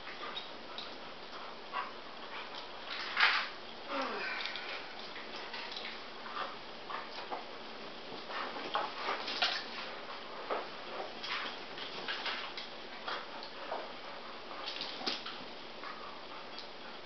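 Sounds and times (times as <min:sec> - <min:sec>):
dog claws clicking on tile floor: 0:02.3 - 0:03.6, 0:04.4 - 0:06.5, 0:08.6 - 0:13.8, 0:14.6 - 0:15.4.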